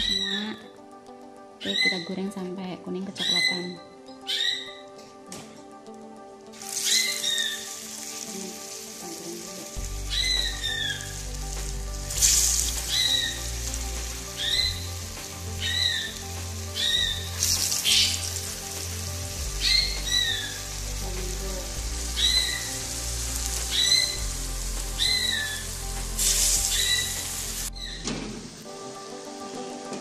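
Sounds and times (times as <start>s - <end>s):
background music: 0.0s - 30.0s
food deep-frying in hot oil: 6.5s - 28.7s.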